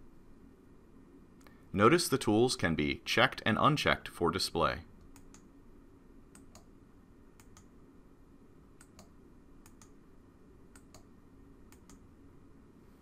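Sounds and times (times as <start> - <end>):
low steady hum: 0.0 - 13.0
computer mouse clicks: 5.0 - 5.5, 6.3 - 6.7, 7.4 - 7.7, 8.8 - 10.0, 10.7 - 11.1, 11.7 - 12.1.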